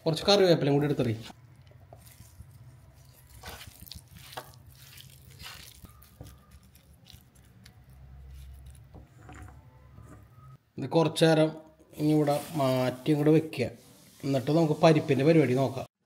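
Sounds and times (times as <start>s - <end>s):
hands squishing prawns: 1.4s - 8.9s.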